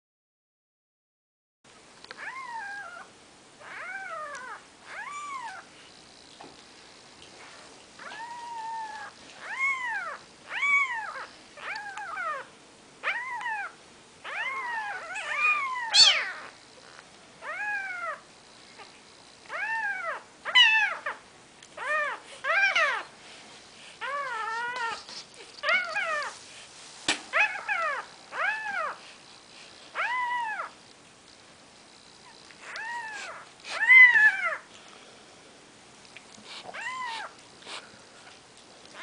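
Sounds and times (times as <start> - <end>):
kittens mewing: 8.0 - 16.6, 36.5 - 37.8.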